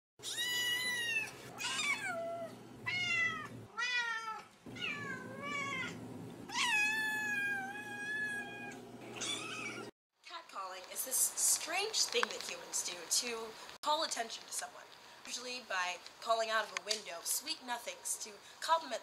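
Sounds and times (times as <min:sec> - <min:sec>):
cat meowing: 0:00.2 - 0:09.8.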